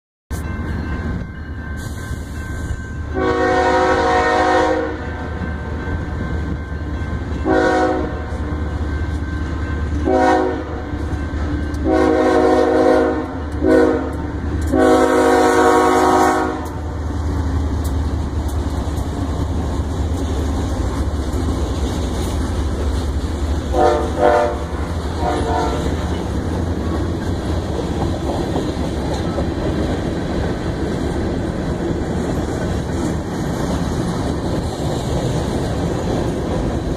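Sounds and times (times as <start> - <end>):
freight train rumbling past: 0.3 - 36.9
locomotive air horn blasts: 3.2 - 5.2, 7.4 - 8.3, 10.0 - 10.9, 11.8 - 17.0, 23.7 - 26.3
wheels clicking over rail joints: 16.6 - 36.9.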